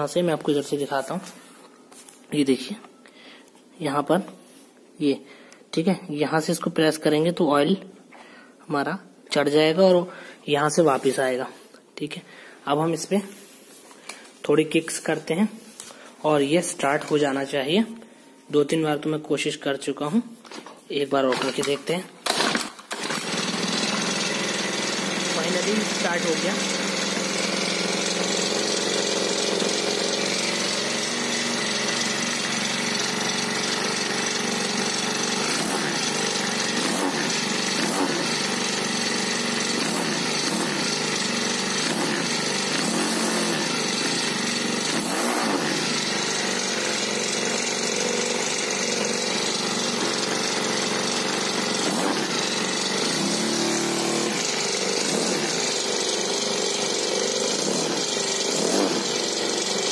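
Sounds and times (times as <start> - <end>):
small petrol engine running: 21.3 - 59.9.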